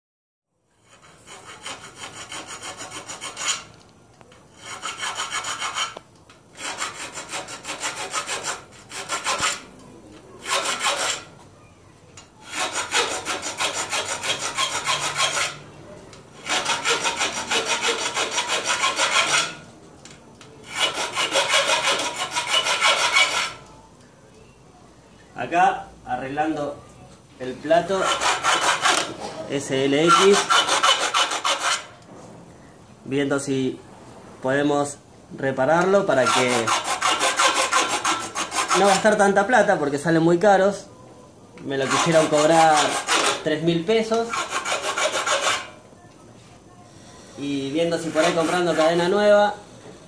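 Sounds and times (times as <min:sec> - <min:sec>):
hand file rasping on metal: 0:00.8 - 0:03.7, 0:04.5 - 0:09.7, 0:10.4 - 0:11.3, 0:12.4 - 0:15.6, 0:16.4 - 0:19.6, 0:20.6 - 0:23.6, 0:27.8 - 0:29.2, 0:30.0 - 0:31.9, 0:36.2 - 0:39.2, 0:41.8 - 0:45.8, 0:47.8 - 0:49.6.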